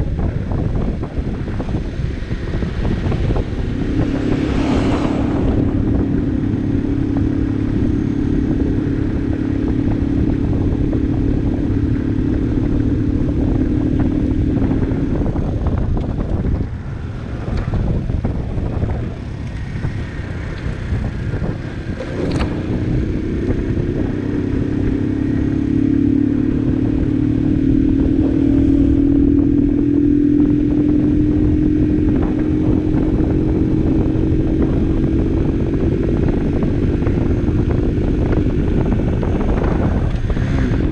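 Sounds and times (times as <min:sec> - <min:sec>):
motorcycle engine running: 0:00.0 - 0:40.9
wind noise on microphone: 0:00.0 - 0:40.9.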